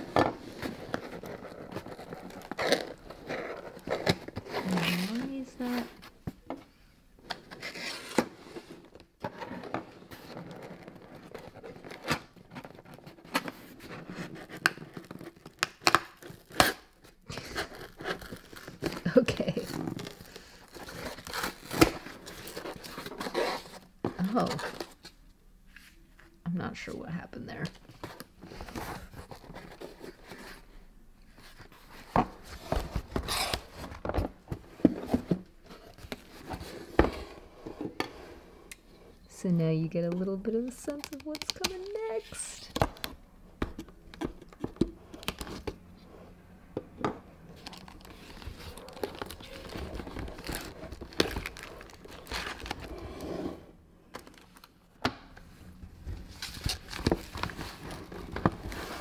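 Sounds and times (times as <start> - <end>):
cardboard scraping rustle: 0.0 - 6.2, 56.1 - 59.0
cardboard rustling and scraping: 0.0 - 6.5, 7.3 - 15.6, 16.2 - 25.0, 27.9 - 38.5, 47.5 - 54.6, 55.5 - 59.0
cardboard ripping: 47.6 - 53.0.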